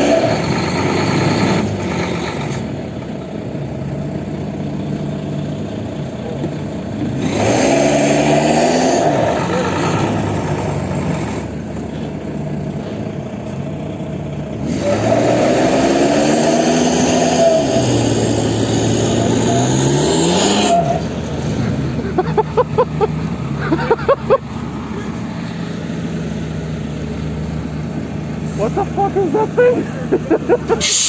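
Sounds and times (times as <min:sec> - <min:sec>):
engine revving hard: 0:00.0 - 0:02.6, 0:07.2 - 0:11.4, 0:14.6 - 0:22.4
low engine drone: 0:17.6 - 0:31.0.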